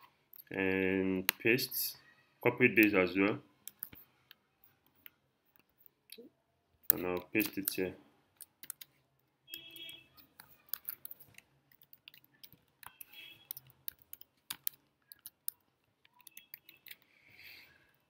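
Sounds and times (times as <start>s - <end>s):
computer keys clicking: 3.6s - 6.2s, 6.9s - 7.8s, 8.4s - 8.9s, 9.5s - 17.1s.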